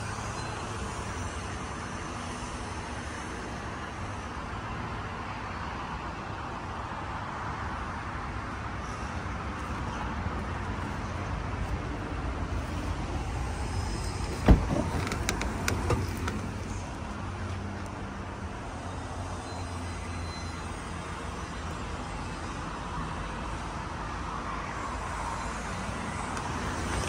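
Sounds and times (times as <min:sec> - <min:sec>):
low rumble of traffic: 0:00.0 - 0:27.0
van door clunk: 0:14.1 - 0:16.6.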